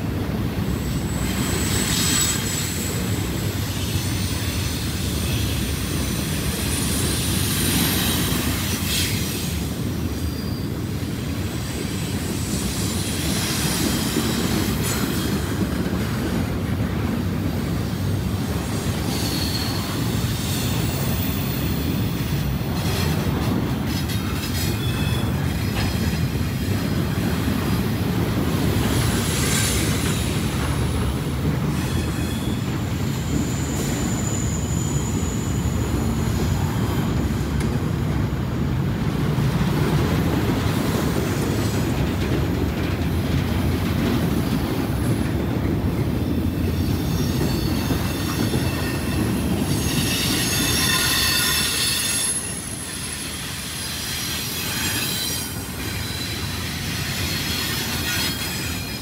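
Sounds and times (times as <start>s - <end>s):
train wheels rumbling on rail: 0.0s - 59.0s
high-pitched wheel squeals: 0.8s - 9.5s, 18.7s - 22.2s, 24.5s - 26.0s, 31.6s - 37.2s, 46.5s - 59.0s.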